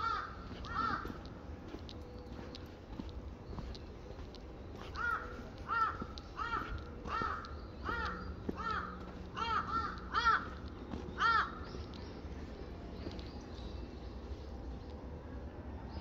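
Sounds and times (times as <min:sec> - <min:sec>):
crow cawing: 0:00.0 - 0:01.3, 0:04.9 - 0:11.7.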